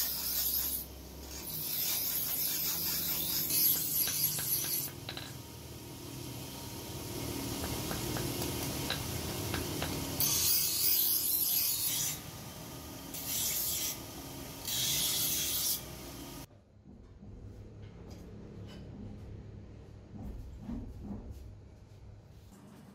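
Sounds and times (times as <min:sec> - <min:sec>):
knife blade grinding on wheel: 0:00.0 - 0:05.4, 0:07.4 - 0:12.3, 0:13.1 - 0:16.1
bench grinder motor humming: 0:00.0 - 0:16.5.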